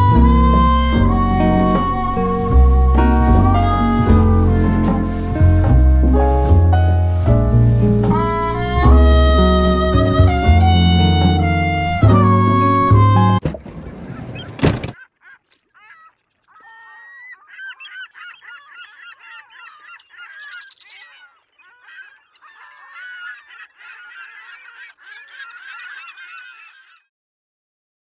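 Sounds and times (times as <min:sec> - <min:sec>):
music cutting off: 0:00.0 - 0:13.4
harsh bird calls: 0:14.0 - 0:27.1
flock of birds calling: 0:14.1 - 0:27.0.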